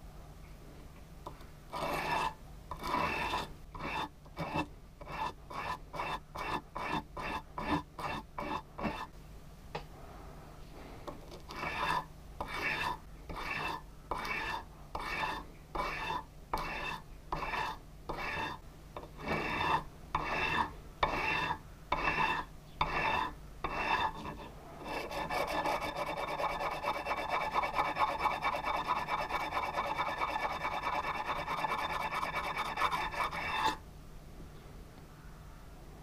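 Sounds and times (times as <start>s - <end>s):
metal scraping on sandpaper: 1.7s - 9.1s, 11.5s - 18.6s, 19.2s - 33.8s.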